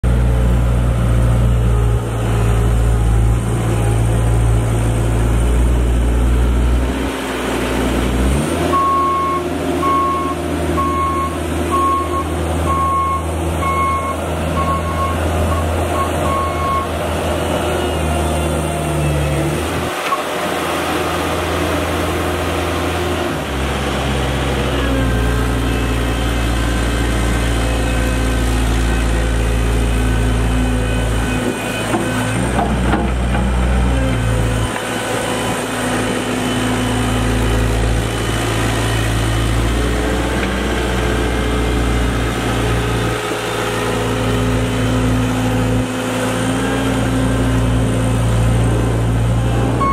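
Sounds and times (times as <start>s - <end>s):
skid steer diesel engine running: 0.0s - 49.9s
reversing alarm beeping: 8.7s - 16.9s.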